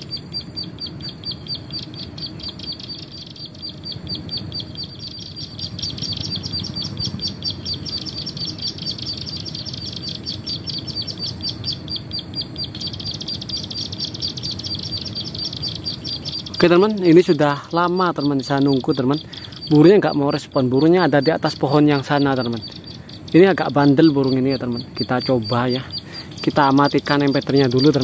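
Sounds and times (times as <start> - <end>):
recorded bird call chirps: 0.0 - 28.0.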